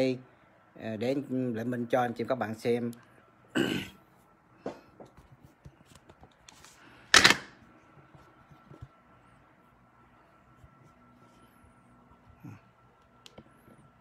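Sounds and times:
phone handling noise: 7.1 - 7.6.

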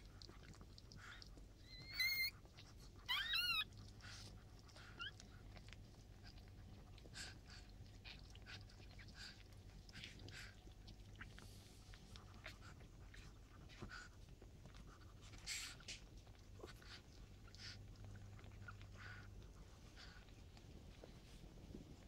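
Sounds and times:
soft wet licking: 0.0 - 22.0
puppies squealing: 1.6 - 2.4, 3.0 - 3.7.

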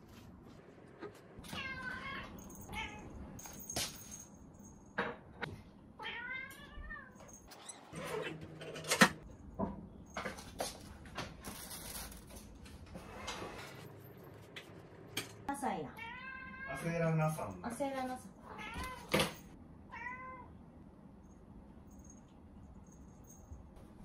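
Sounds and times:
cat meowing: 1.4 - 3.0, 6.0 - 7.2, 15.9 - 16.9, 18.4 - 19.2, 19.9 - 20.5.

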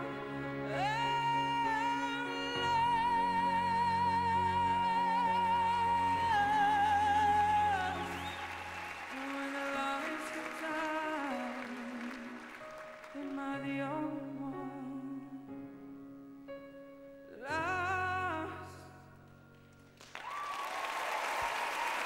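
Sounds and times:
backing music: 0.0 - 14.5
male singer with vibrato: 0.6 - 15.5, 17.3 - 19.0.

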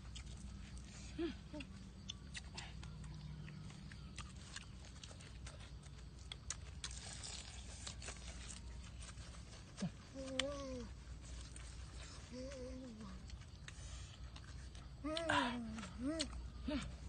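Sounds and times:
people chewing wetly: 0.0 - 17.0
person humming mmm: 15.0 - 17.0.

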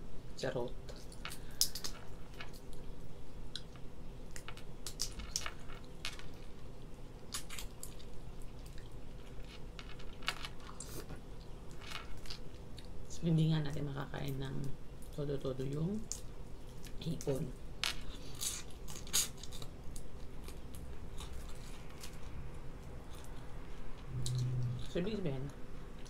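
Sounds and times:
chewing and crunching: 1.3 - 13.0, 18.0 - 24.9.

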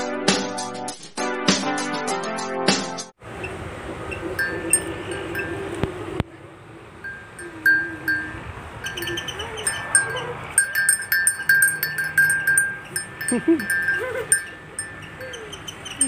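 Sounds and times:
small neck bell clinking: 4.4 - 5.6, 7.0 - 16.0
bull low calls: 7.0 - 16.0.

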